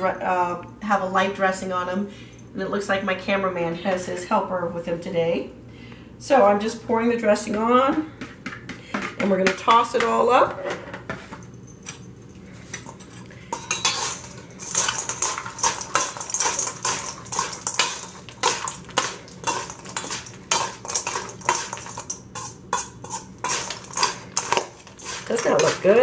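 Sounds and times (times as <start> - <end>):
spoons clinking against metal bowl: 12.7 - 26.0.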